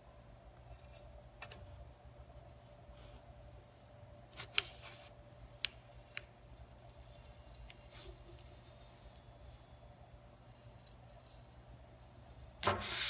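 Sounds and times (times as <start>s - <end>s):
faint steady hum: 0.0s - 13.0s
foam crackling and clicking: 5.6s - 9.2s.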